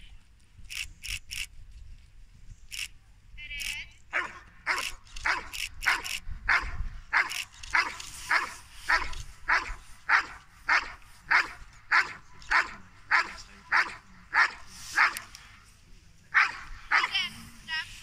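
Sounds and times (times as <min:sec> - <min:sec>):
dog barking: 0:04.1 - 0:15.3, 0:16.4 - 0:17.2.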